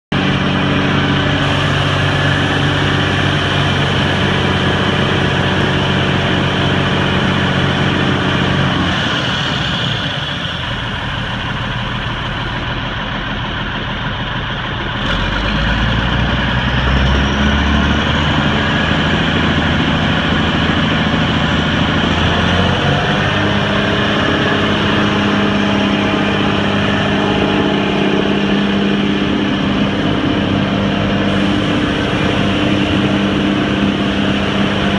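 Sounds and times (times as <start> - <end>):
diesel truck engine running: 0.1 - 34.9.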